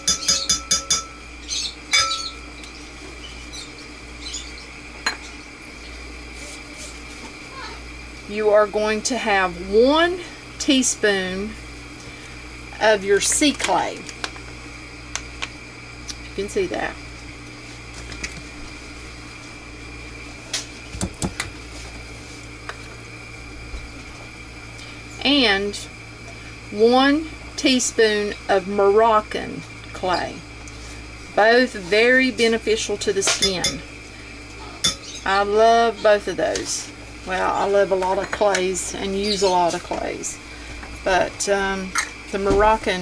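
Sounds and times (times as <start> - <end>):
metal spoon clinking on ceramic bowl: 0.0 - 1.2
steady background hum: 0.0 - 43.0.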